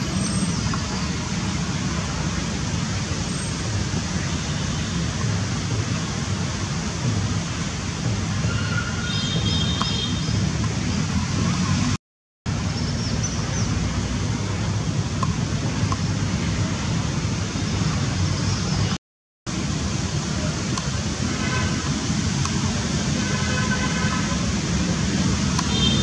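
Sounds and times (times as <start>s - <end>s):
low rumble with hiss: 19.5s - 25.8s.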